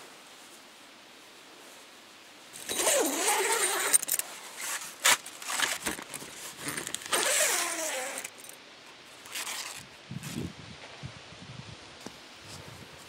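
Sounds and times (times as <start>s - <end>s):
zipper and nylon fabric rasping: 2.6s - 8.5s, 9.2s - 10.5s.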